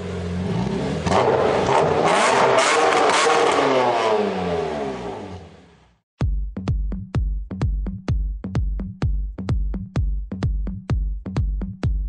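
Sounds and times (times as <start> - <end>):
car engine revving: 0.0 - 6.0.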